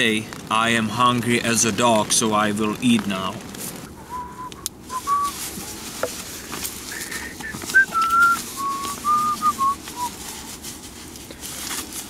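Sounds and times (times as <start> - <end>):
nylon fabric rustling: 0.0 - 4.0, 4.8 - 12.0
person whistling a tune: 4.1 - 5.4, 7.7 - 10.1.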